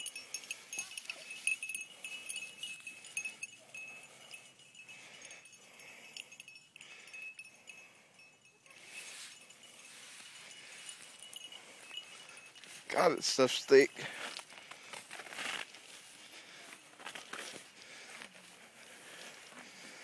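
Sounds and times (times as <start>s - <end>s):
metallic jingling: 0.0s - 15.2s
dry grass and brush rustling: 0.0s - 20.0s.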